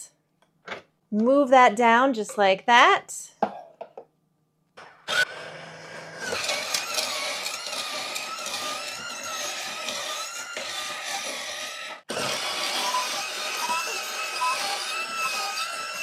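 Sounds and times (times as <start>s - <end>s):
blade grinding ice: 5.1s - 16.0s.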